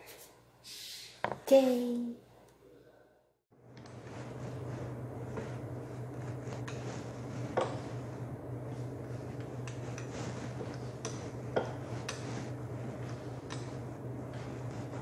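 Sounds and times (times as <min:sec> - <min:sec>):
steady low hum: 0:03.5 - 0:15.0
roller and utensils knocking on countertop: 0:06.5 - 0:08.0, 0:09.4 - 0:15.0.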